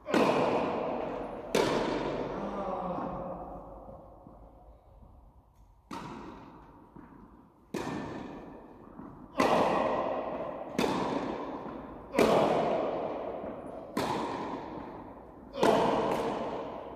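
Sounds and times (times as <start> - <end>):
tennis ball struck by racket: 0.0 - 2.4, 5.8 - 16.9
tennis ball bouncing: 0.0 - 16.9.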